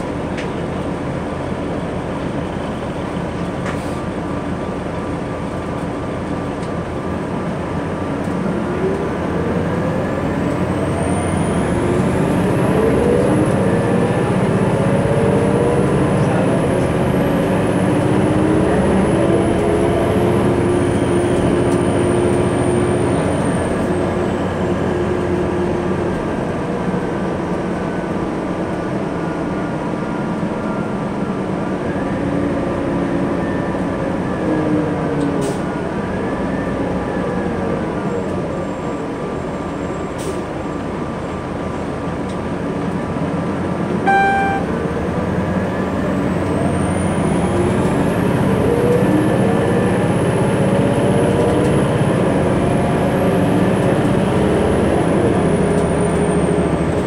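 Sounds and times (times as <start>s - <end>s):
bus engine running: 0.0s - 57.0s
short electronic beep: 44.0s - 44.8s.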